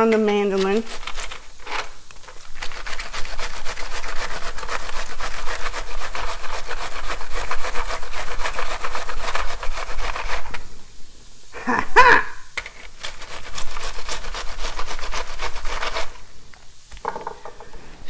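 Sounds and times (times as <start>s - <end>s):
cabbage rasping on mandoline slicer: 0.0s - 1.8s, 2.5s - 10.6s, 13.1s - 16.2s.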